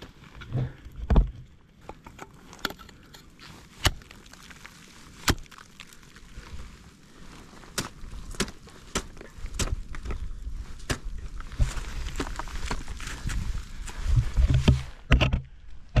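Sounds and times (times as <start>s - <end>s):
ice axes and crampons striking ice: 2.0s - 6.3s, 7.6s - 16.0s.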